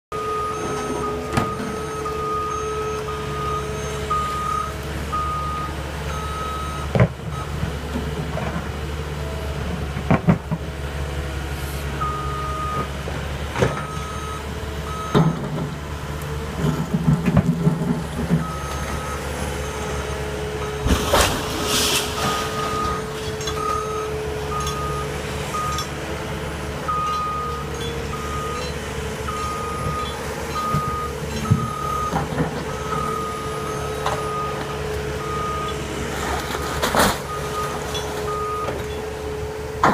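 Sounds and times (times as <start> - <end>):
excavator engine running: 0.2 - 39.9
falling brickwork crash: 20.8 - 23.4
backup alarm beeping: 22.2 - 25.9, 29.3 - 34.6.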